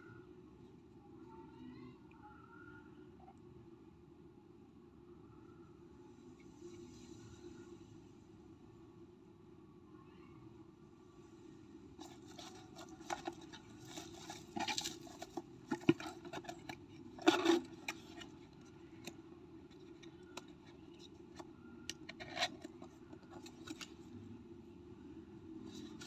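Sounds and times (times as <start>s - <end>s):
packaging rustling: 12.0s - 19.1s.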